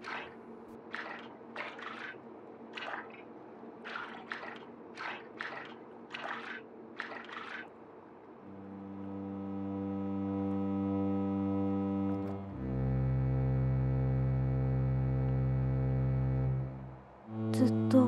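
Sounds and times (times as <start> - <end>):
liquid drips: 0.0 - 7.8
steady low drone: 8.4 - 18.0.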